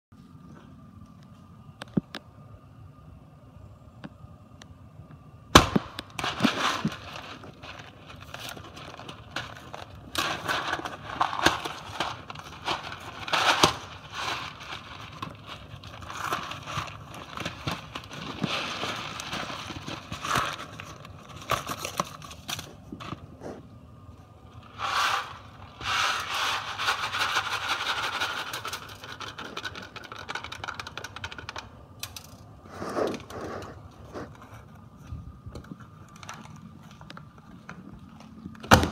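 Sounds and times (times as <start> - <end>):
cardboard box clicking and crackling: 6.2 - 23.2
cardboard rustling: 6.2 - 23.6.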